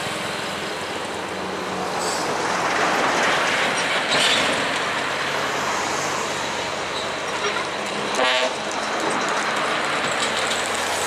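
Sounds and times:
heavy truck passing: 0:00.0 - 0:11.0
road traffic: 0:00.0 - 0:11.0.

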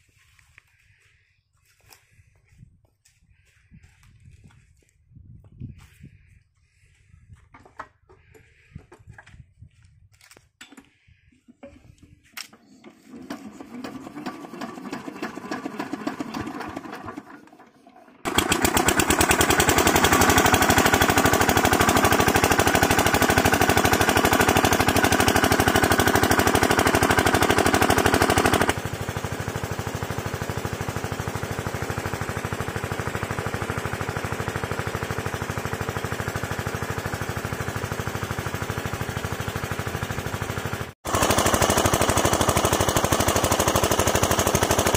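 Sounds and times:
engine cranking and running: 0:11.6 - 0:44.9
pump pushing water: 0:12.5 - 0:44.9.

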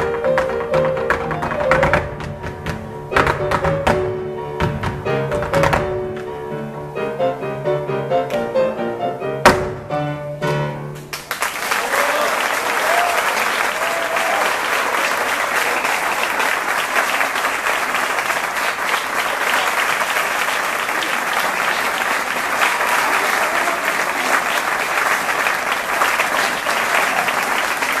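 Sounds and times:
audience applauding: 0:11.1 - 0:28.0.

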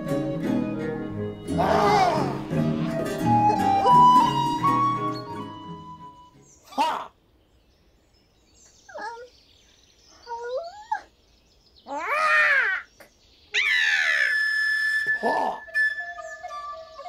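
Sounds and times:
rising and falling chirp: 0:00.0 - 0:06.8, 0:13.5 - 0:17.0
falling sweeps to high note: 0:01.5 - 0:06.3
cartoon warbling squeaks: 0:13.6 - 0:17.0.

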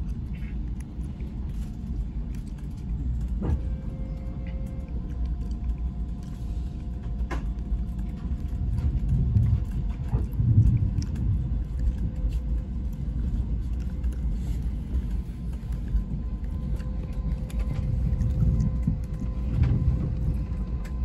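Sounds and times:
train rumble inside car: 0:00.0 - 0:21.0.

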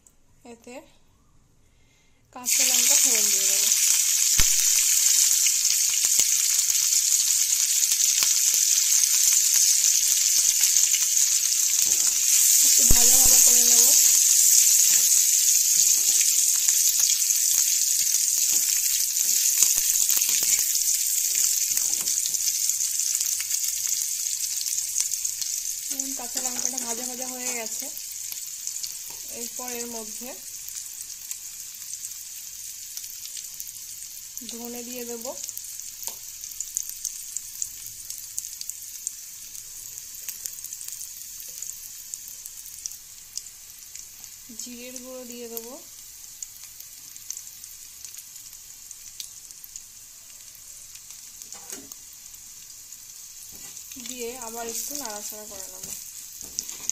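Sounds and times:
chillies sizzling in hot oil: 0:02.4 - 0:56.9.

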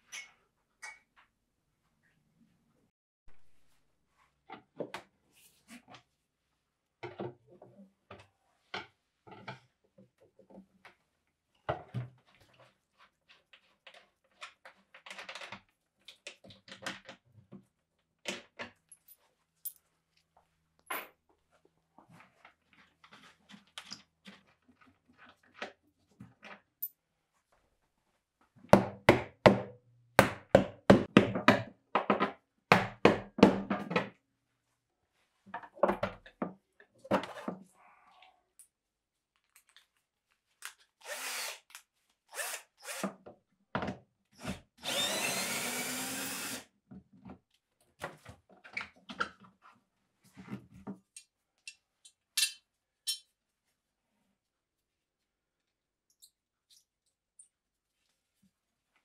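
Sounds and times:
sharp knocks and thuds on wood: 0:28.8 - 0:34.1
power drill running: 0:41.0 - 0:41.6, 0:42.3 - 0:43.0, 0:44.8 - 0:46.7.

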